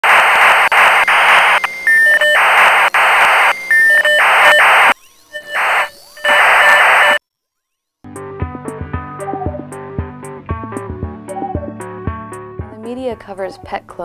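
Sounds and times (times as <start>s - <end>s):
harsh radio static: 0.0s - 7.2s
electronic beep tones: 0.7s - 7.2s.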